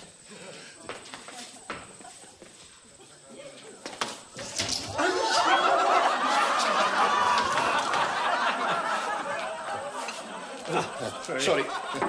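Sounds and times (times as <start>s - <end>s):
audience laughing: 5.0s - 12.0s.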